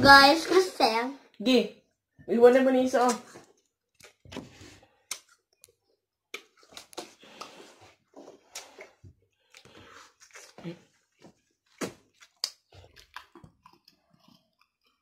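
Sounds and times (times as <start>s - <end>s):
boy chewing and sucking lemon: 3.4s - 15.0s.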